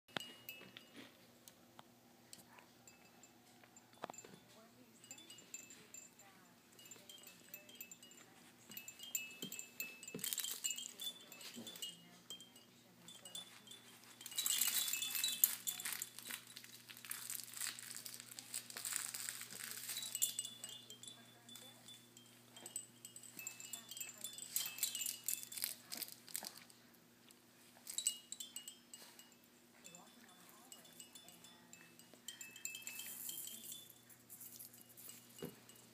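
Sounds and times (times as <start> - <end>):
small chimes and rattles jingling: 0.1 - 35.9
fabric toy crinkling: 9.9 - 12.0, 13.2 - 20.9, 23.6 - 26.8.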